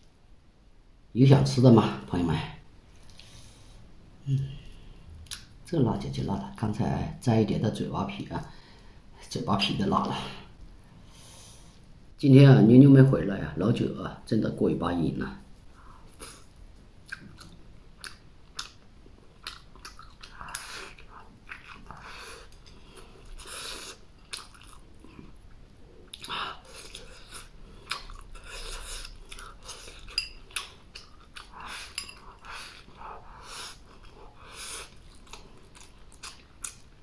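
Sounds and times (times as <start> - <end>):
person chewing food: 2.9 - 3.5, 15.8 - 37.0.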